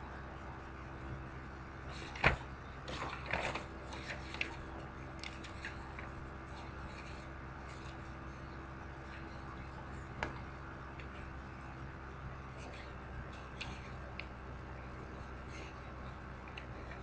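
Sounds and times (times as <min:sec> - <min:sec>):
low electrical hum: 0:00.0 - 0:17.0
soft clicks and rustles: 0:01.9 - 0:08.4, 0:15.2 - 0:17.0.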